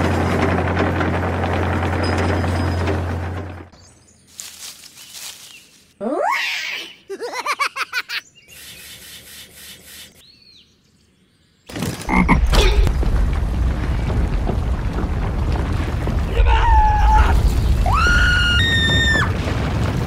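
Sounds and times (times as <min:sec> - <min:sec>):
loud low machine rumble: 0:00.0 - 0:03.8.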